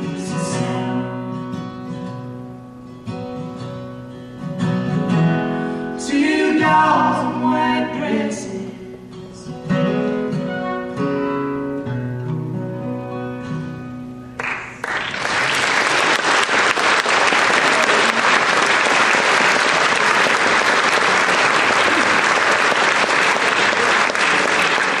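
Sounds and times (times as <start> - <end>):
acoustic guitar and fiddle chord: 0.0 - 14.4
audience applause: 14.4 - 25.0.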